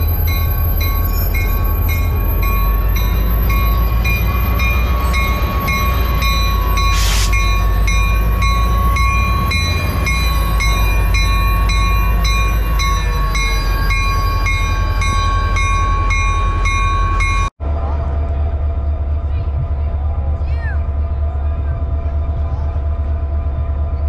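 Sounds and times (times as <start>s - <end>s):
railroad crossing bell ringing: 0.0s - 17.5s
diesel locomotive idling: 0.0s - 24.0s
air hiss: 6.9s - 7.3s.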